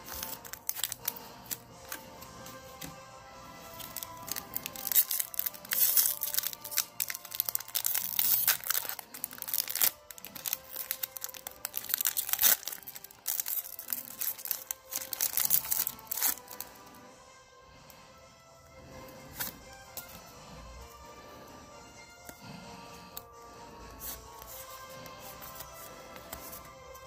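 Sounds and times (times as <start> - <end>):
foil wrapper crackling: 0.0 - 1.6, 3.7 - 16.6
background music: 0.0 - 27.0.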